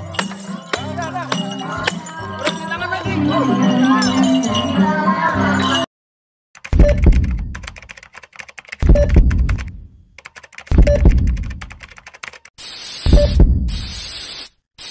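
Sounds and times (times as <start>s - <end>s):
static hiss: 12.6s - 14.9s
heavy thud: 13.1s - 13.7s.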